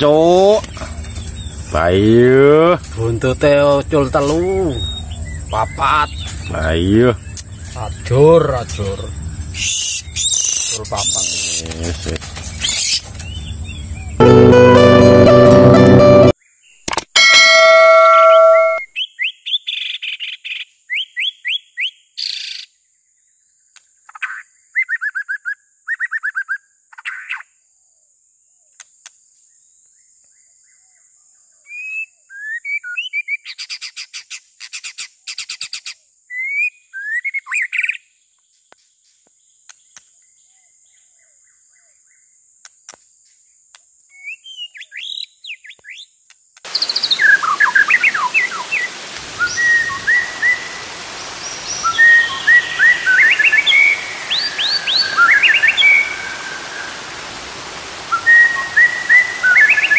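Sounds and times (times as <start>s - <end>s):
waterfall running water: 0.0s - 16.3s, 46.7s - 59.9s
bird singing whistled phrases: 9.6s - 11.6s, 46.7s - 59.9s.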